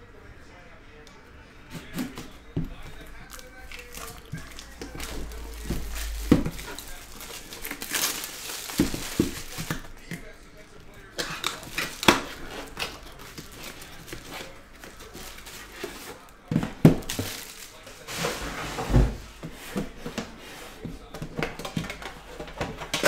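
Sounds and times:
plastic shrink wrap crinkling: 1.9s - 18.5s
box and metal tin clattering: 3.3s - 9.9s.

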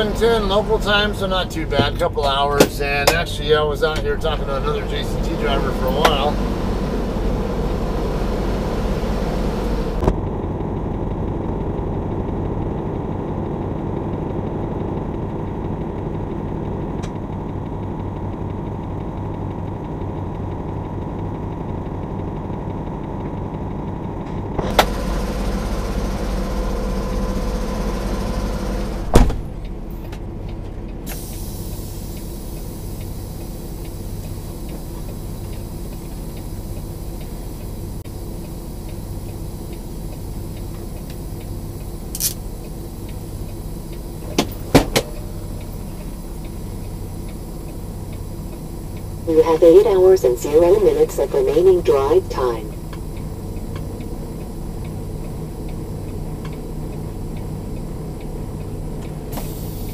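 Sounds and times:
truck diesel engine idling: 0.0s - 59.9s
cab door shutting: 29.0s - 29.6s, 44.2s - 45.3s.

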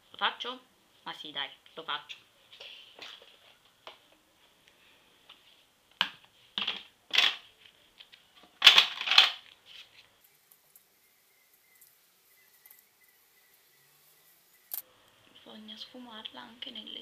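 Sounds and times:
cosmetics containers clattering: 8.6s - 9.4s.

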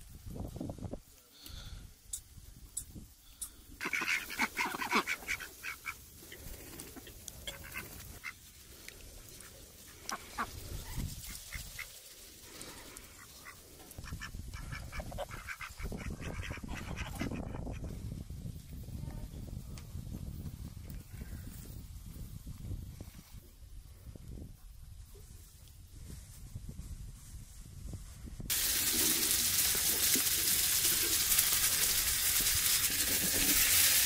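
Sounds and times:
waterfowl calling: 3.4s - 6.0s.

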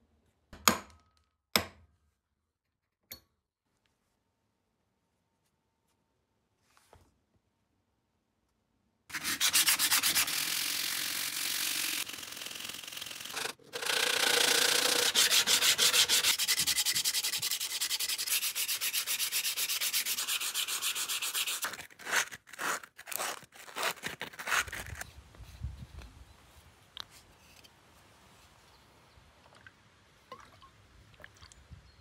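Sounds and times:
sandpaper rasping on wood: 9.1s - 25.0s.

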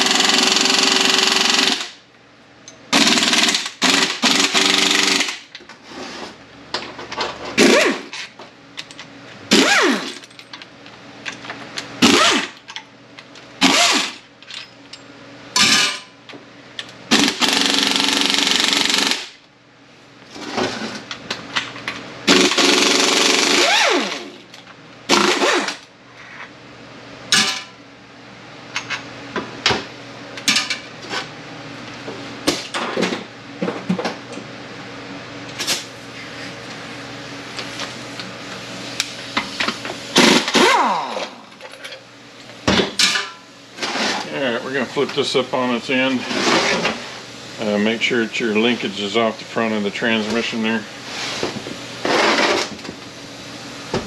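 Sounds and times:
bolts and tool clinking: 8.1s - 9.1s, 10.0s - 11.9s.

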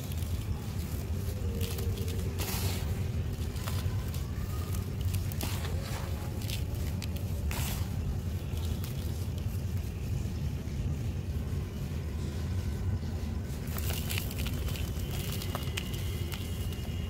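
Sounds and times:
dust trickling into plastic basin: 0.0s - 10.0s, 13.5s - 17.0s
small crackles: 0.0s - 10.2s, 13.5s - 17.0s
low background rumble: 0.0s - 17.0s
sandy clump crushed by hand: 13.6s - 17.0s.

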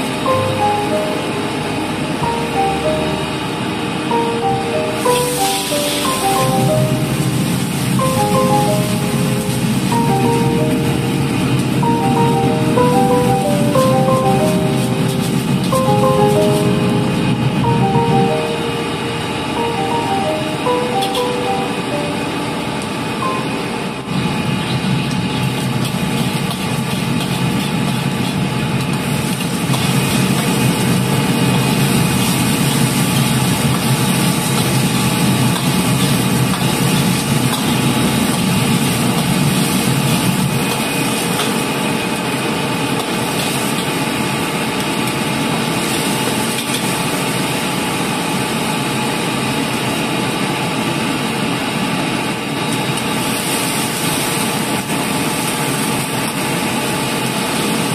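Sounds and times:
gas burner roaring: 5.1s - 10.0s, 23.1s - 57.9s
vegetables frying in oil: 24.6s - 48.0s, 52.6s - 57.9s.

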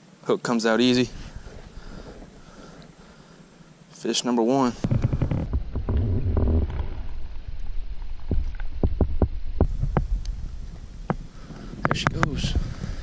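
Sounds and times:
wind rumble on microphone: 4.7s - 13.0s.

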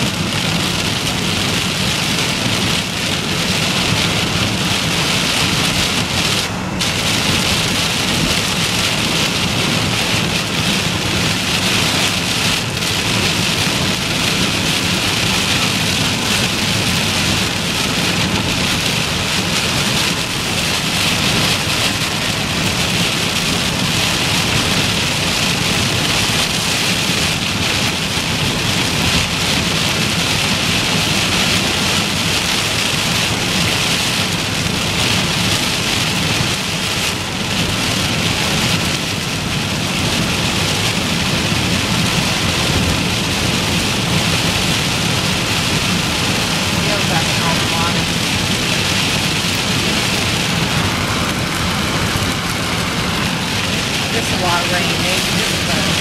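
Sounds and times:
heavy rain on car roof: 0.0s - 56.0s
low road rumble: 0.0s - 56.0s.

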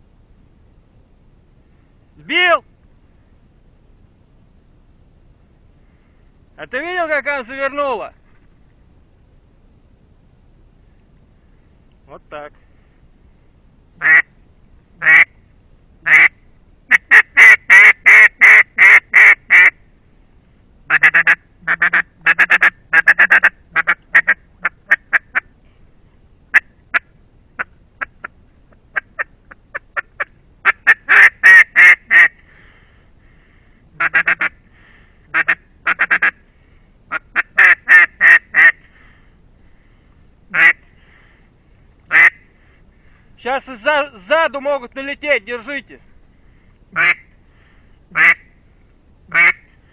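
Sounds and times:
duck call quacking: 14.0s - 14.3s, 15.0s - 15.3s, 16.0s - 16.3s, 16.9s - 19.8s, 20.9s - 25.5s, 28.9s - 32.4s, 34.0s - 34.6s, 35.3s - 36.4s, 37.1s - 38.8s, 40.5s - 40.8s, 42.1s - 42.4s, 47.0s - 47.3s, 48.1s - 48.5s, 49.3s - 49.7s.

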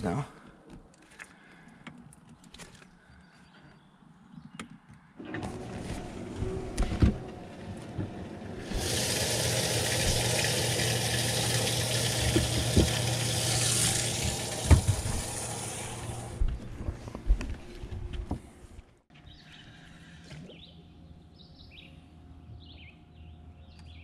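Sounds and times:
pump humming: 5.3s - 16.5s
water pouring with a hiss: 8.6s - 16.4s.

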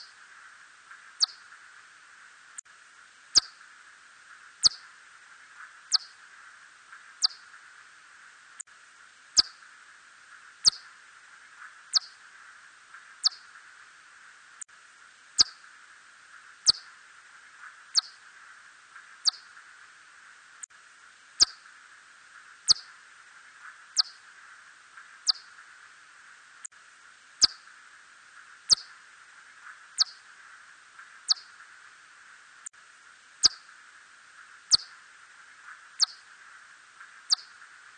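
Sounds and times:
steady hiss: 0.0s - 37.9s
bat chirps: 1.2s - 1.4s, 3.4s - 3.6s, 4.6s - 4.9s, 5.9s - 6.2s, 7.2s - 7.4s, 9.4s - 9.6s, 10.6s - 10.9s, 11.9s - 12.2s, 13.2s - 13.5s, 15.4s - 15.6s, 16.6s - 16.9s, 17.9s - 18.2s, 19.2s - 19.5s, 21.4s - 21.6s, 22.7s - 23.0s, 24.0s - 24.2s, 25.2s - 25.6s, 27.4s - 27.7s, 28.7s - 29.0s, 30.0s - 30.2s, 31.3s - 31.6s, 33.4s - 33.7s, 34.7s - 35.0s, 36.0s - 36.2s, 37.3s - 37.6s.

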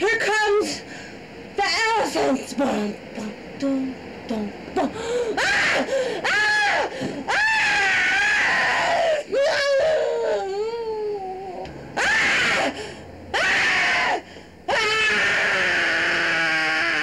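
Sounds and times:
high-pitched wailing cries: 5.4s - 17.0s.

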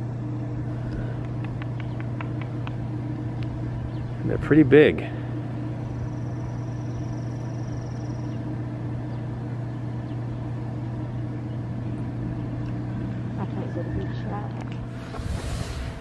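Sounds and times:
low machine hum: 0.0s - 16.0s
faint high whine: 2.9s - 9.2s.

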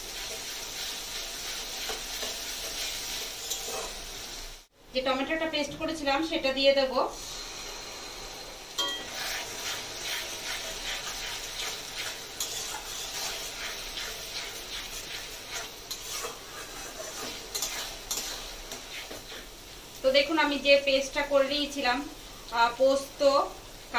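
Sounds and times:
paste sizzling in hot oil: 0.0s - 4.7s, 7.1s - 23.9s
metal spatula scraping pan: 0.1s - 4.0s, 8.8s - 19.5s.

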